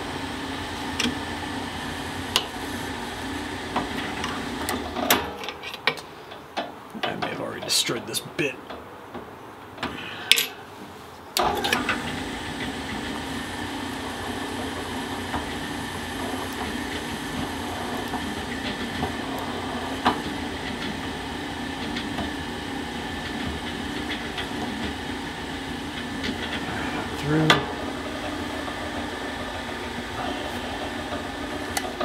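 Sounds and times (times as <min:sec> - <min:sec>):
drill press motor humming: 0:11.4 - 0:32.0.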